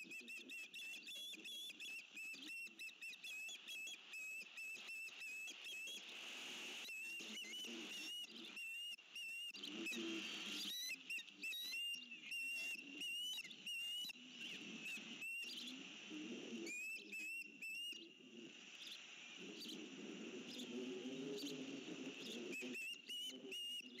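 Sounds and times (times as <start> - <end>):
ospreys chirping: 9.4 - 24.0.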